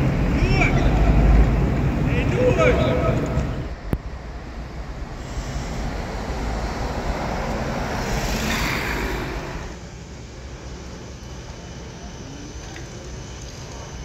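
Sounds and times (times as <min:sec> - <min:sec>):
vehicle passing by: 0:00.0 - 0:09.8.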